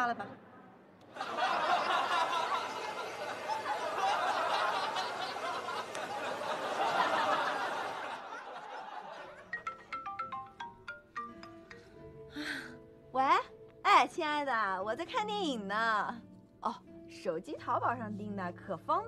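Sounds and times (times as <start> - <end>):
audience laughter: 1.1 - 9.7
xylophone-like mallet music: 9.4 - 12.7.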